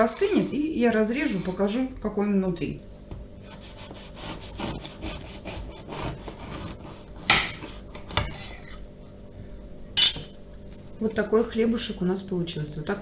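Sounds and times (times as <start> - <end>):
knife sawing through bread crust: 3.4 - 8.8.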